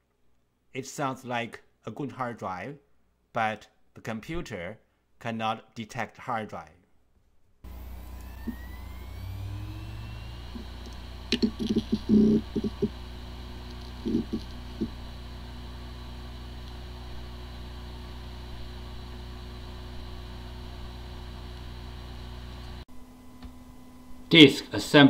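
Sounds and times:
hard drive running hum: 7.6s - 24.4s
hard drive whine: 7.6s - 24.7s
hard drive clicks and knocks: 10.6s - 13.0s, 13.6s - 15.0s.

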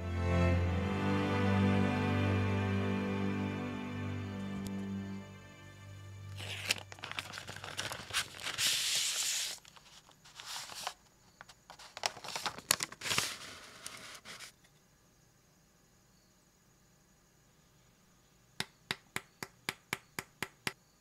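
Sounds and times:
paper wrapping rustling: 6.4s - 14.6s.

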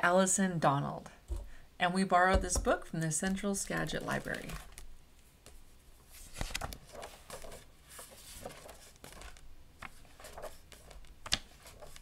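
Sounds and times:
book pages turning: 3.3s - 12.0s.

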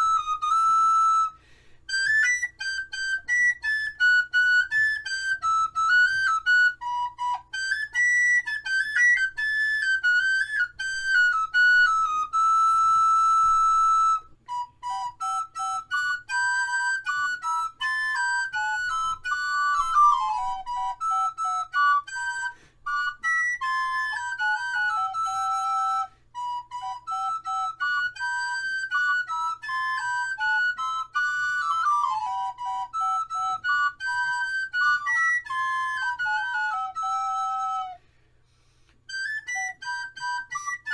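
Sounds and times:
solo flute melody: 0.0s - 40.9s.

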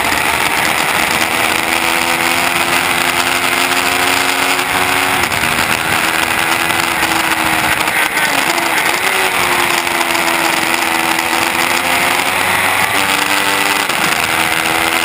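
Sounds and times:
motorcycle engine at high revs: 0.0s - 15.0s
wind on microphone: 4.7s - 7.9s.

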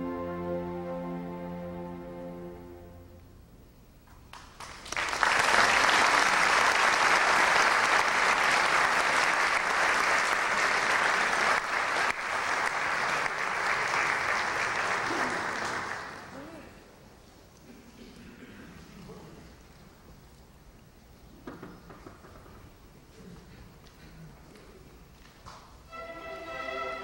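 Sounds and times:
audience applauding: 4.2s - 16.5s.

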